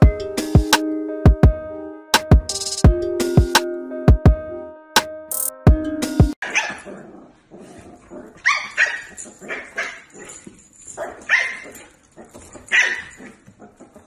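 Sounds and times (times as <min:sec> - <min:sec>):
dog barking: 0:06.4 - 0:07.1, 0:08.4 - 0:10.4, 0:11.0 - 0:11.9, 0:12.7 - 0:13.9.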